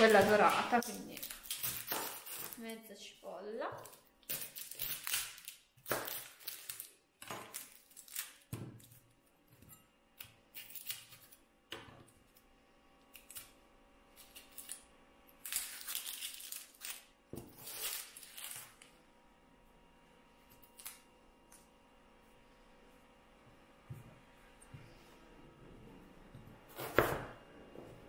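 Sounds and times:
onion crackling and rustling: 0.0s - 2.8s, 15.4s - 18.9s.

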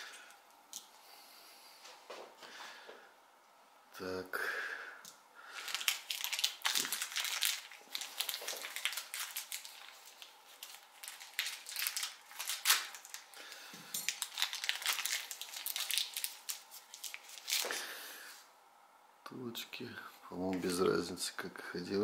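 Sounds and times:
plastic bag crinkling: 5.4s - 18.0s.

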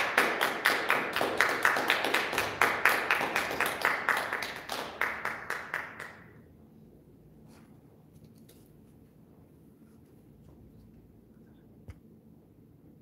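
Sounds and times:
audience applauding: 0.0s - 6.3s.

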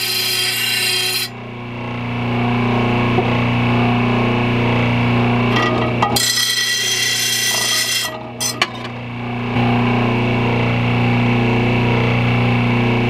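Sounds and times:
blade grinding on grinder wheel: 0.0s - 1.4s, 5.4s - 9.1s.

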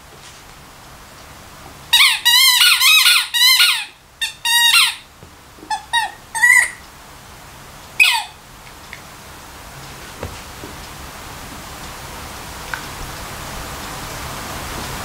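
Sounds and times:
rubber squeaky toy squeaking: 1.9s - 5.0s, 5.6s - 6.8s, 8.0s - 8.4s.

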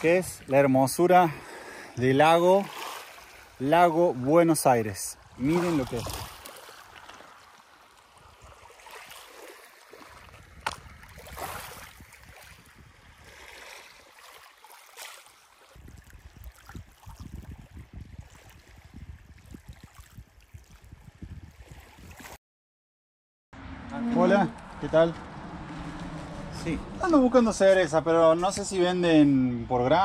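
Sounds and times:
waves lapping on pebbles: 0.0s - 21.0s
wind rumbling on microphone: 5.0s - 6.5s, 10.1s - 13.6s, 15.7s - 22.4s.

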